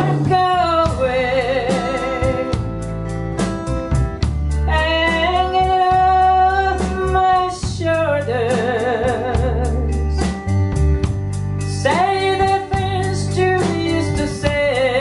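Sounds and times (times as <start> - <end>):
woman singing with vibrato: 0.0 - 2.8, 4.7 - 10.4, 11.7 - 15.0
strummed acoustic guitar: 0.0 - 15.0
upright bass: 0.0 - 15.0.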